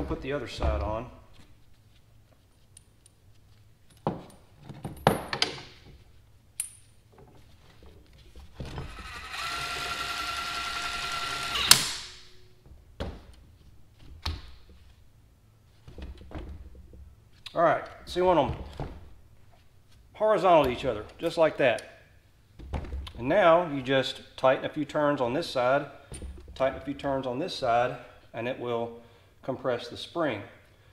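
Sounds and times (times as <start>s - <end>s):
power tool whirring: 8.8s - 12.2s.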